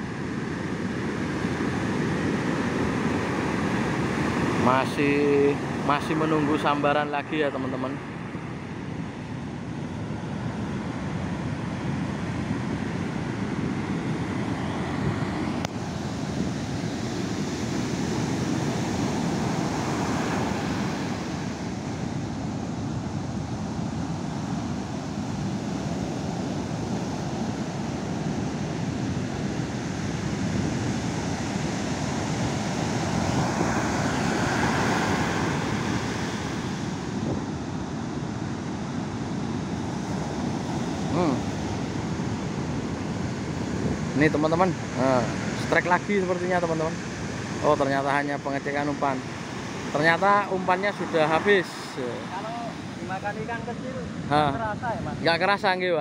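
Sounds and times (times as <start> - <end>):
ocean surf breaking on beach: 0.0 - 56.0
wind on microphone: 9.1 - 45.7.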